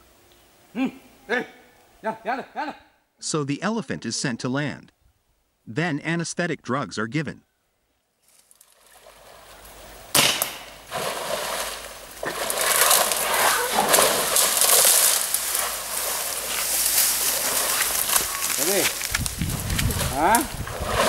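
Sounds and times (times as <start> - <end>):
leaves and branches rustling: 8.1 - 21.0
elephant splashing in water: 10.8 - 18.9, 19.5 - 21.0.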